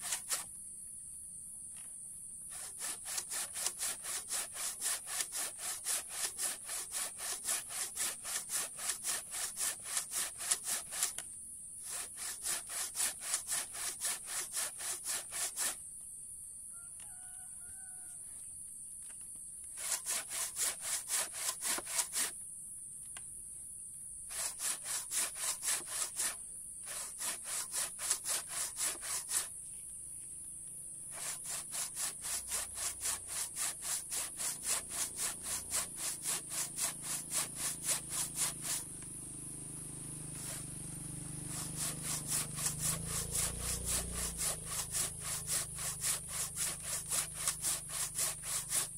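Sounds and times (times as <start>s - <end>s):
handsaw cutting wood: 0.0s - 0.5s, 2.5s - 11.2s, 11.8s - 15.8s, 19.7s - 22.4s, 24.3s - 29.5s, 31.0s - 39.1s, 39.8s - 48.9s
rooster crowing: 16.7s - 18.4s.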